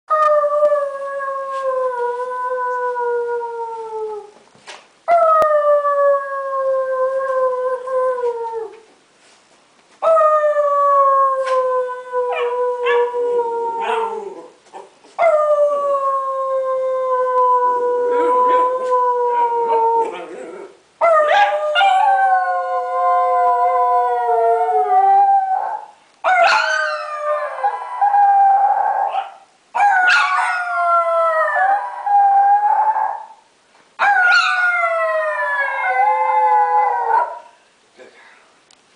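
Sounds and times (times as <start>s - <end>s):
dog howling: 10.2s - 14.5s
person howling: 15.9s - 20.7s.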